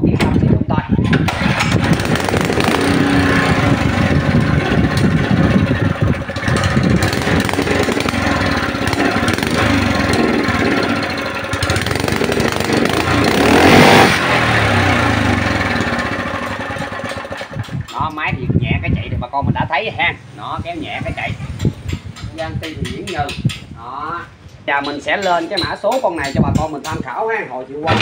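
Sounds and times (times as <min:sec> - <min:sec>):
small engine running: 0:01.3 - 0:17.8.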